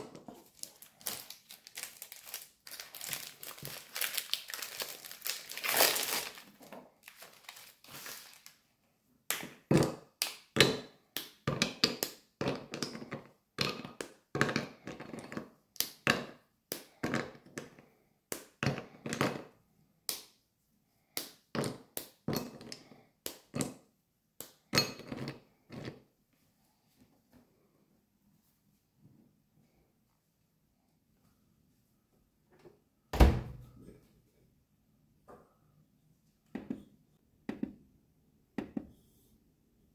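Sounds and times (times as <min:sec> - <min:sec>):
crinkling: 0:00.1 - 0:08.6.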